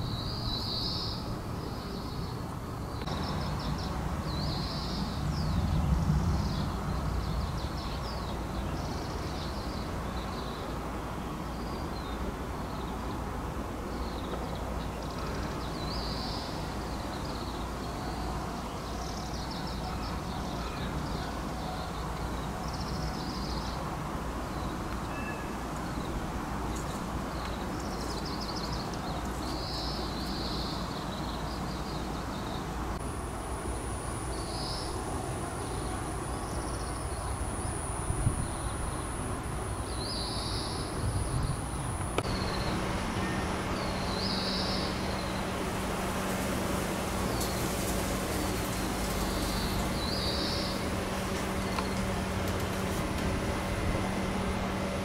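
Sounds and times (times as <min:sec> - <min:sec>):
small birds chirping: 0:00.0 - 0:13.2, 0:13.9 - 0:33.2, 0:34.3 - 0:55.0
steady low rumble: 0:02.5 - 0:09.4
thin steady high tone: 0:41.6 - 0:46.0.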